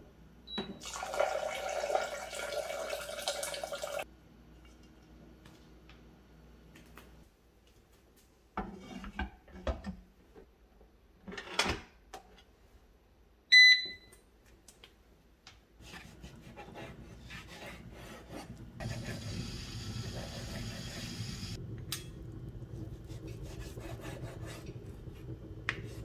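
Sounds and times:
short electronic beep: 0:13.5 - 0:14.1.

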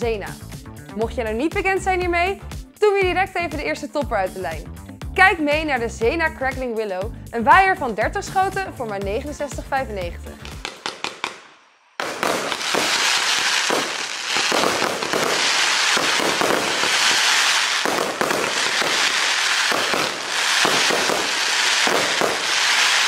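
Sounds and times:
fireworks crackling: 0:10.4 - 0:23.0
fireworks launch reports: 0:12.0 - 0:23.0.

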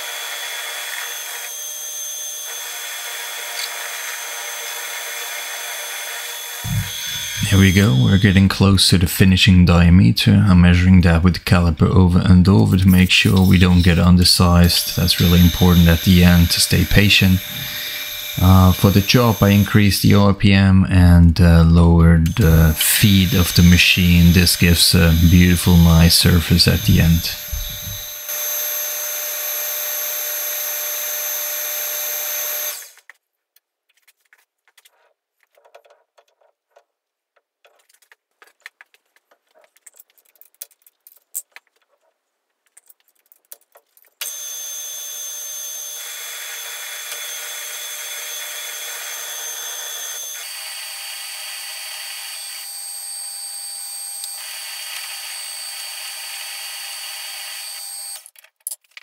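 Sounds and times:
metal lathe whining: 0:00.0 - 0:08.7, 0:12.9 - 0:19.9, 0:22.3 - 0:33.0, 0:44.2 - 0:58.3
small metallic clicks: 0:37.6 - 0:44.3, 0:58.2 - 0:59.0.

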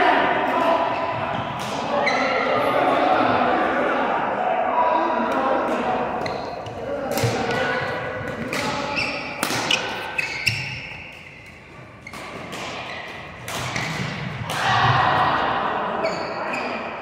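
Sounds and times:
shoe squeaks on court floor: 0:06.2 - 0:06.8, 0:08.8 - 0:14.0, 0:16.0 - 0:16.8
racket striking shuttlecock: 0:08.2 - 0:14.7.

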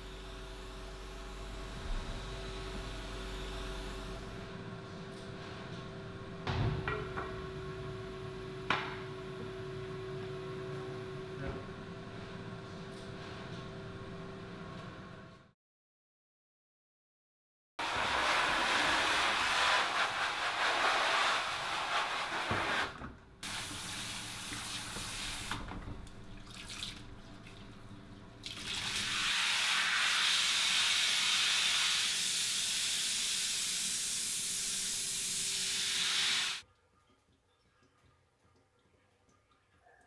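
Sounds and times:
water running from a hose: 0:23.4 - 0:25.7, 0:28.4 - 0:36.6
water splashing: 0:24.4 - 0:29.2.

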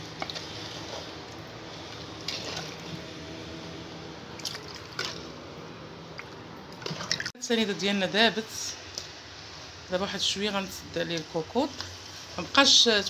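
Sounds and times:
syrup sloshing in a pot: 0:00.0 - 0:03.2.

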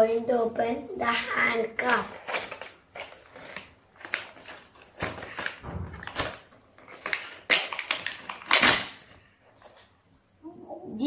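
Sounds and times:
packaging being torn and crinkled: 0:02.1 - 0:09.2.

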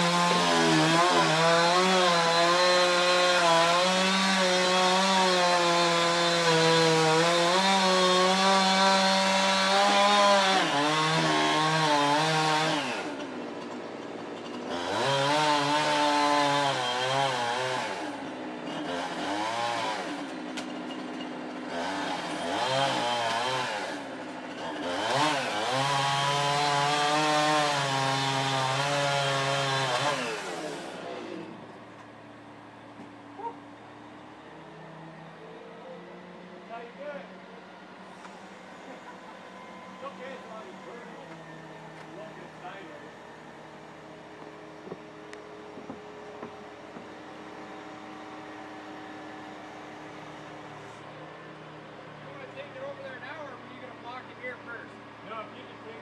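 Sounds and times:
chainsaw engine revving: 0:00.0 - 0:31.7, 0:38.1 - 0:44.4
chainsaw cutting wood: 0:00.0 - 0:32.2, 0:38.0 - 0:54.6.

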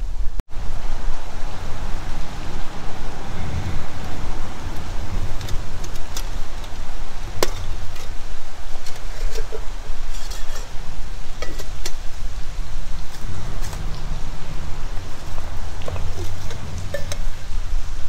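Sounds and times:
low rumble: 0:00.0 - 0:08.8, 0:12.0 - 0:18.0
metal pot and mug clinking: 0:08.9 - 0:12.0, 0:15.1 - 0:17.4.

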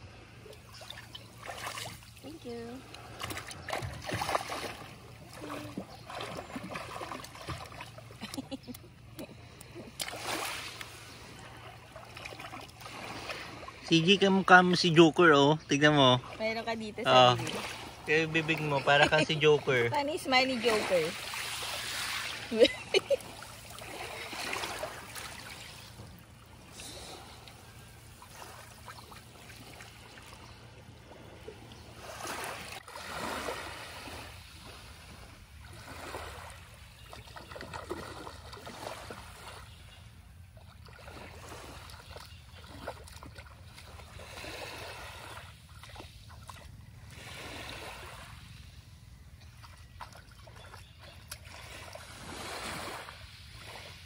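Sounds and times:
small waves washing on beach: 0:00.0 - 0:54.0.

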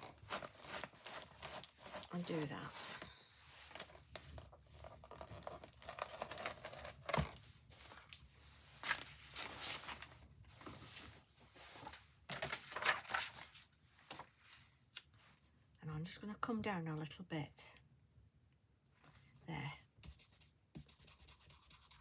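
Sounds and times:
paper rustling and crinkling: 0:00.0 - 0:15.4.

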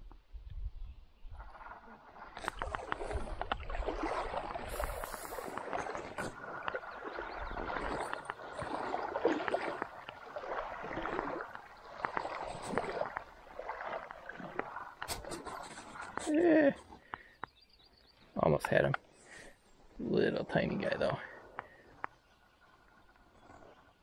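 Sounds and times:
creek water sloshing and gurgling: 0:01.2 - 0:24.0
small clicks and splashes: 0:01.6 - 0:17.6, 0:21.4 - 0:24.0.

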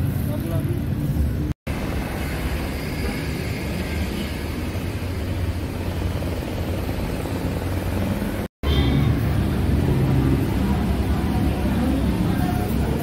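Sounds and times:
outdoor background rumble: 0:00.0 - 0:13.0.

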